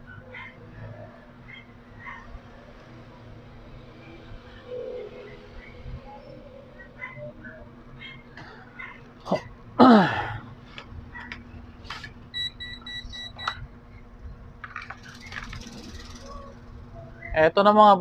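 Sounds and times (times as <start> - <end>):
high electronic beeps: 12.3 - 13.6.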